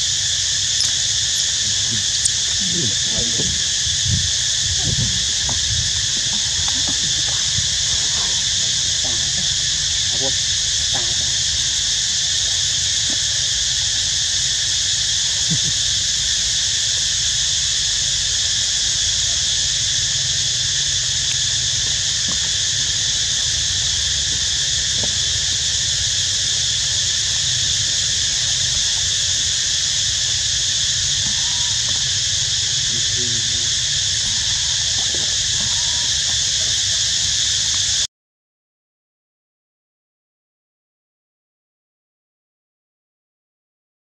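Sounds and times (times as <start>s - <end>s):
insects chorus: 0.0s - 38.1s
low rumble: 1.9s - 12.1s.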